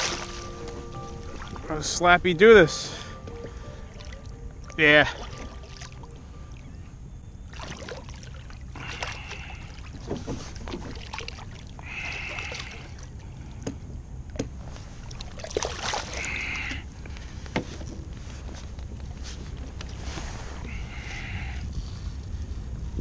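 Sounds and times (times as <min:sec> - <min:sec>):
steady low rumble: 0:00.0 - 0:23.0
fish splashing in water: 0:07.5 - 0:13.2, 0:15.0 - 0:16.8.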